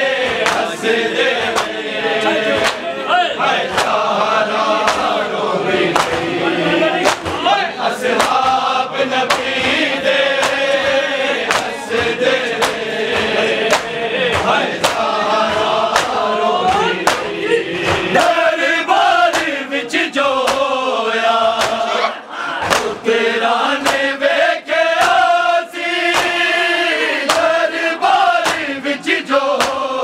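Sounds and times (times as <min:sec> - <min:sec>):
chest-beating in unison: 0:00.0 - 0:30.0
men's chorus chanting a lament: 0:00.0 - 0:30.0.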